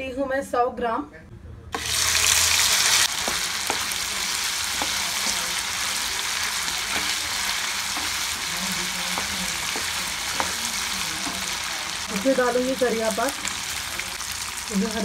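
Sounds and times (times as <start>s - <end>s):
meat sizzling in oil: 1.8s - 15.0s
spatula knocking: 3.1s - 12.6s.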